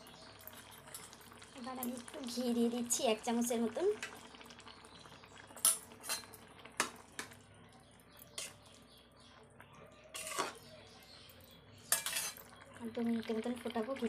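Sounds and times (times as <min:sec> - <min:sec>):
spatula scraping metal pan: 0:08.3 - 0:08.7, 0:10.1 - 0:10.7, 0:11.8 - 0:12.5.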